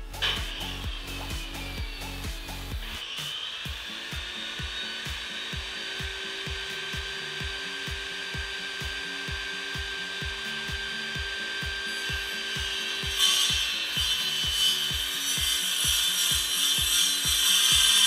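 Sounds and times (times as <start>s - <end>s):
background music with beat: 0.0s - 18.0s
power saw cutting wood: 0.0s - 18.0s.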